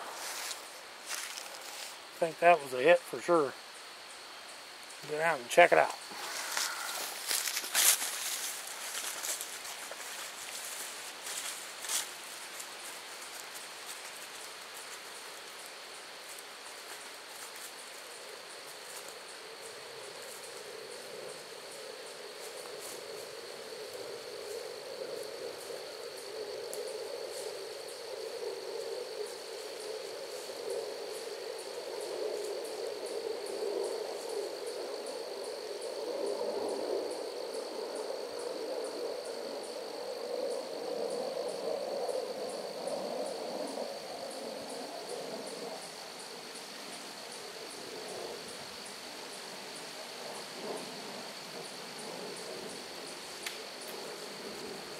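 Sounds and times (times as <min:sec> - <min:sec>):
low noise: 0:00.0 - 0:29.6
insects droning and clicking: 0:00.0 - 0:54.9.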